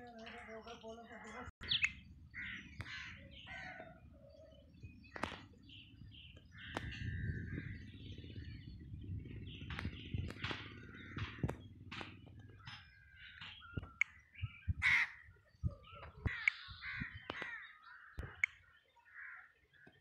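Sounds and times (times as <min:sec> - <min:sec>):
bird chirps: 0:00.0 - 0:20.0
crows cawing: 0:02.4 - 0:04.1, 0:10.4 - 0:11.5, 0:14.8 - 0:15.3, 0:16.2 - 0:20.0
low rumble: 0:06.0 - 0:14.8
sharp clicks: 0:09.6 - 0:14.2, 0:17.2 - 0:17.6.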